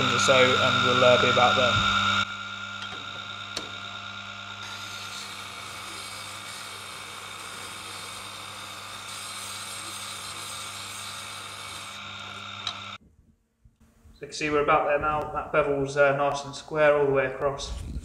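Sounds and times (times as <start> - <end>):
chisel grinding hiss: 0.0 - 13.0
grinder motor hum: 0.0 - 13.0.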